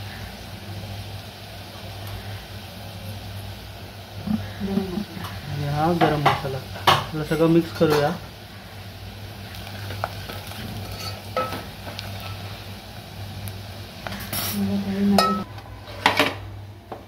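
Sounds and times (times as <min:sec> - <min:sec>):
oil sizzling: 0:00.0 - 0:17.0
spoon scraping and clinking pot: 0:09.9 - 0:12.5.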